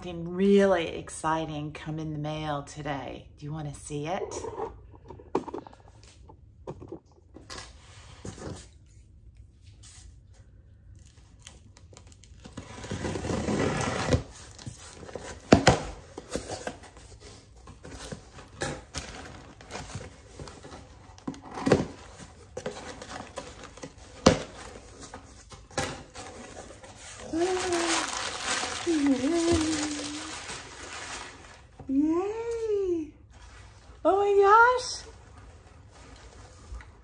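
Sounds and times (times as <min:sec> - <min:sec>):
knife scraping cardboard: 0:12.6 - 0:14.4
paper rustling: 0:26.2 - 0:31.8.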